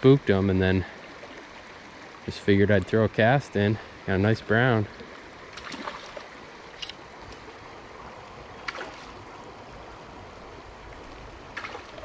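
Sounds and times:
shallow river flowing: 0.0s - 12.0s.

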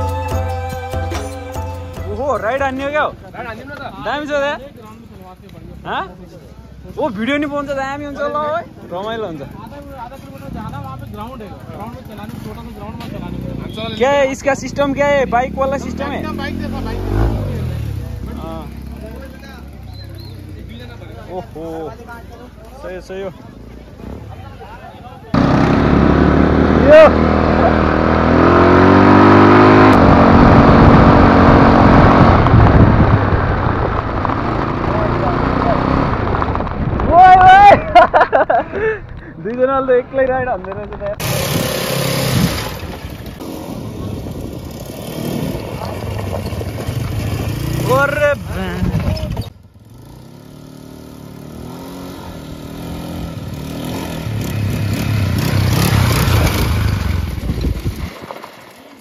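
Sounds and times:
quad bike engine revving: 10.4s - 20.3s, 25.3s - 36.6s, 41.2s - 58.1s.

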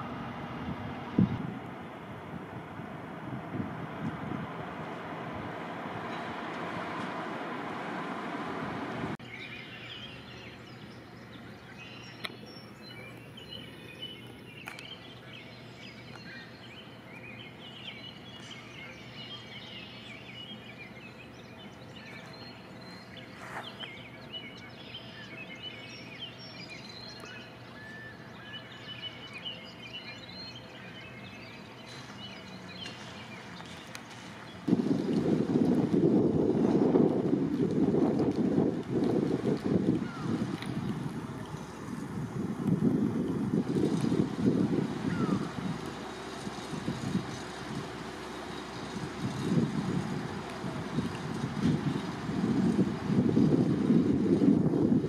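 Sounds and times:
small birds chirping: 9.2s - 35.4s, 39.0s - 55.0s.

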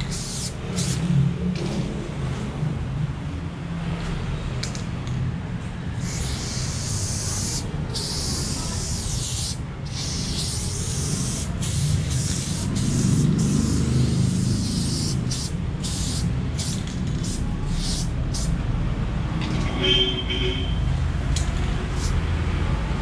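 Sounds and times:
spray can hissing: 0.0s - 1.1s, 6.0s - 18.6s, 21.8s - 22.2s.

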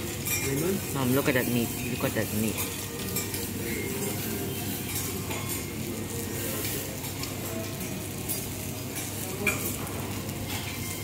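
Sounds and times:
meat sizzling on a griddle: 0.0s - 11.0s.

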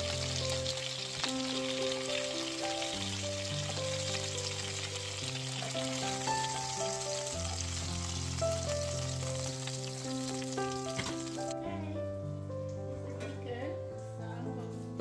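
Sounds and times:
chicken sizzling in a grill pan: 0.0s - 11.6s
background music: 0.0s - 15.0s.

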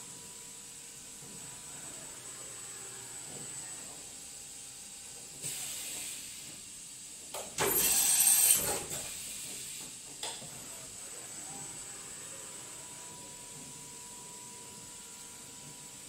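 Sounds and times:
machine air hiss: 4.8s - 10.2s.

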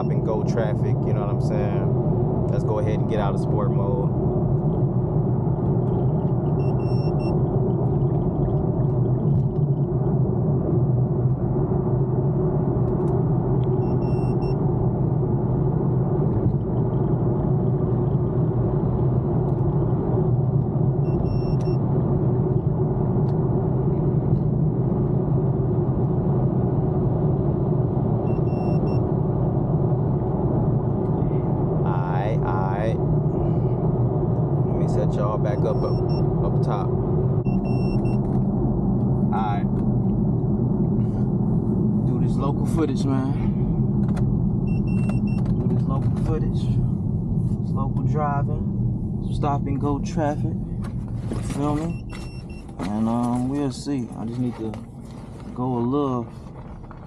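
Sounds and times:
faint short beep: 21.1s - 21.8s, 35.6s - 36.3s, 37.5s - 38.2s, 51.7s - 52.8s
car engine running: 27.9s - 57.0s.

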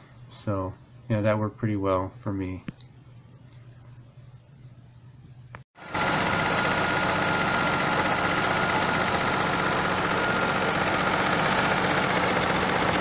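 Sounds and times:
car engine idling: 5.8s - 13.0s.

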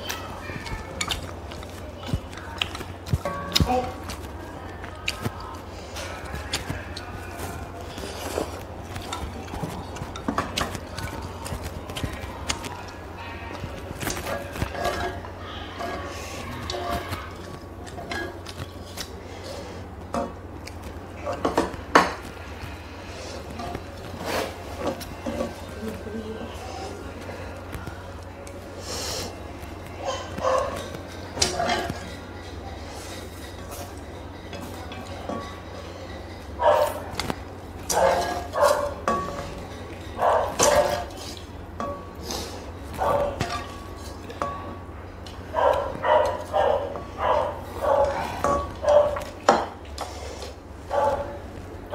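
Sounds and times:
chopsticks clinking on bowls: 0.0s - 19.2s, 30.1s - 50.4s.

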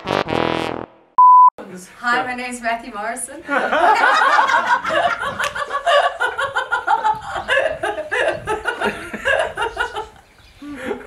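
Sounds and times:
people laughing: 3.4s - 11.0s.

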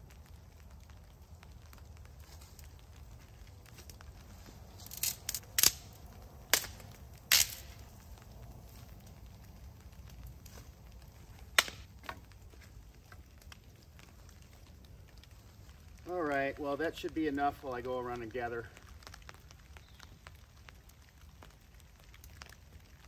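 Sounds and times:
dry sticks snapping: 1.3s - 15.3s.

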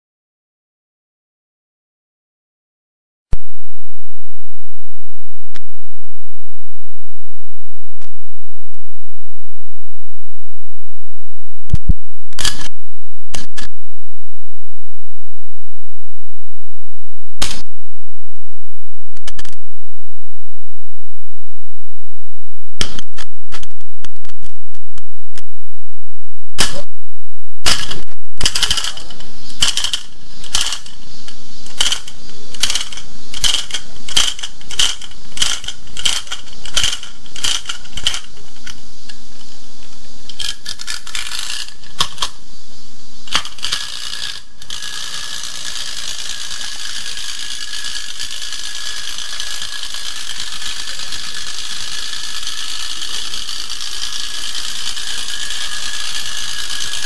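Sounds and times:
clockwork winding ratchet clicks: 27.7s - 31.0s, 31.7s - 38.8s, 40.3s - 42.3s, 43.3s - 57.0s
clockwork motor whirring: 27.7s - 38.8s, 40.3s - 42.4s, 43.3s - 57.0s.

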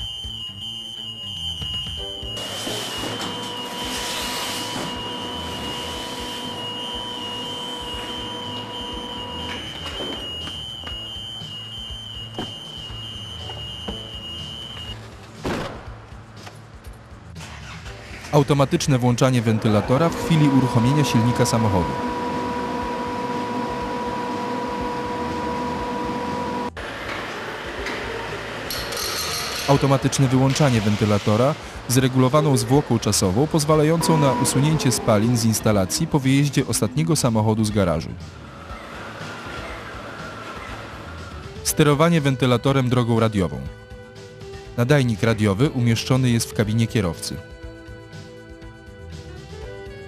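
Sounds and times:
high-pitched alarm tone: 0.0s - 15.0s, 19.8s - 26.8s, 33.6s - 37.0s
lower alarm tones: 0.0s - 15.0s, 19.6s - 26.8s, 33.4s - 37.4s
extraction fan humming: 0.0s - 15.4s, 19.2s - 41.8s.

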